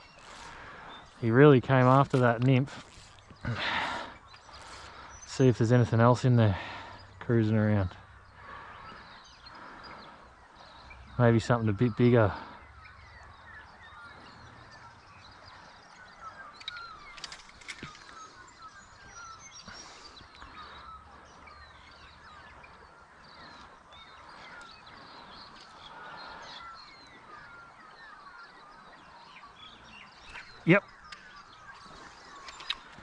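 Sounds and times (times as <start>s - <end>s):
birds chirping: 0.0s - 33.0s
light clicks: 31.1s - 33.0s.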